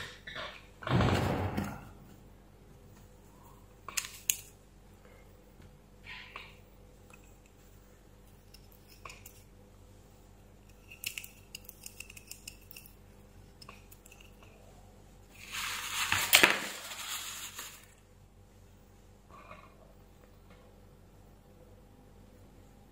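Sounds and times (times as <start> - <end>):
small metal gears clicking: 10.7 - 13.0
rubbing rustling noise: 15.3 - 18.0.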